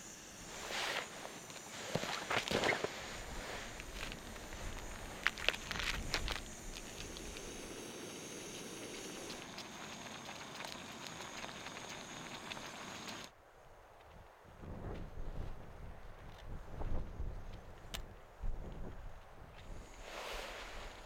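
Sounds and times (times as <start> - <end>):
gas stove hissing: 0.0 - 13.3.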